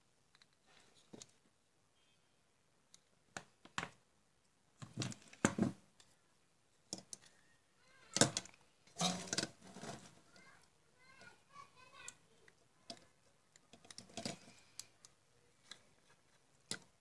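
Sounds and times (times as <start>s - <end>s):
plastic parts clicking and rattling: 6.8s - 7.4s, 8.0s - 11.3s, 11.9s - 17.0s.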